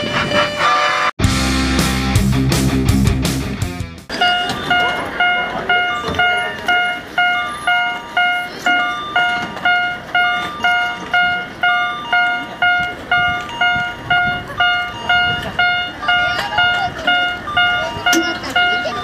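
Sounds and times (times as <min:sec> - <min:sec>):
crossing signal bell ringing: 0:04.1 - 0:19.0.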